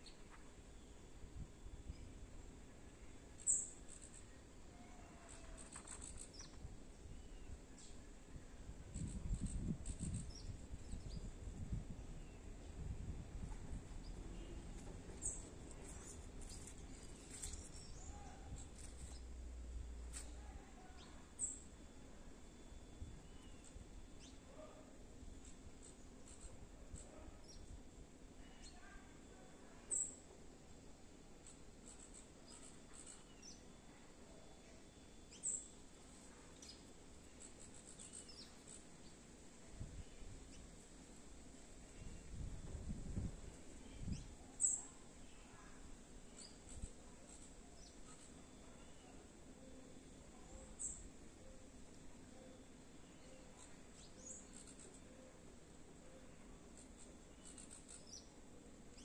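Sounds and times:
faint high bird chirps: 0:03.4 - 0:08.1, 0:08.9 - 0:11.3, 0:14.0 - 0:19.4, 0:20.2 - 0:21.8, 0:22.6 - 0:27.8, 0:28.4 - 0:30.3, 0:31.4 - 0:39.2, 0:43.8 - 0:55.4, 0:56.0 - 0:59.0.

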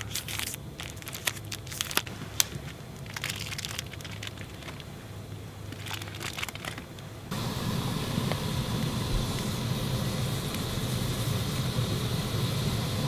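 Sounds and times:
plastic wrapper crinkling: 0:00.0 - 0:05.0, 0:05.7 - 0:07.3.

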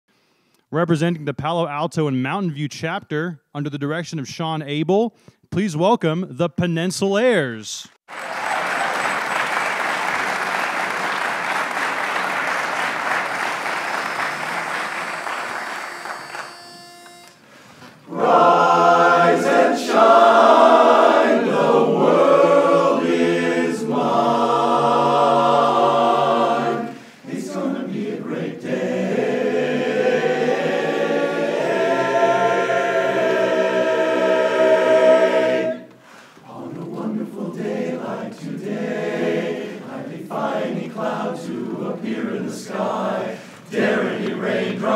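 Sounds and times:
audience applause: 0:08.1 - 0:16.6
men's chorus singing a cappella: 0:18.1 - 0:44.9.

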